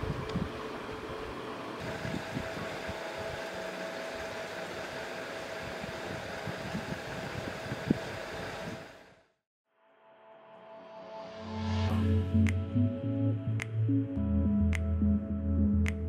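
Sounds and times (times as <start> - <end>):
fan-like background hum: 0.0 - 9.1.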